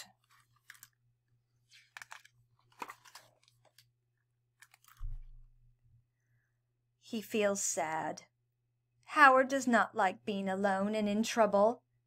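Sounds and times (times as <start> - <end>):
paper pages rustling and turning: 0.0 - 4.0, 4.6 - 5.3
soft low thump: 5.0 - 5.5.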